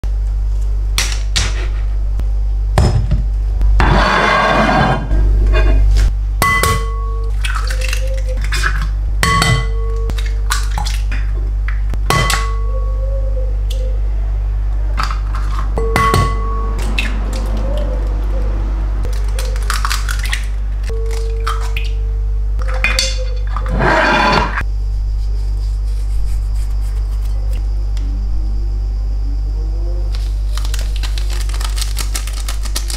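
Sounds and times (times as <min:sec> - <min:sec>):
steady low hum: 0:00.0 - 0:32.9
glass ringing: 0:06.4 - 0:07.3, 0:09.2 - 0:10.1, 0:12.1 - 0:12.8, 0:15.8 - 0:16.8
eggs tapping on glass bowl: 0:15.8 - 0:16.8.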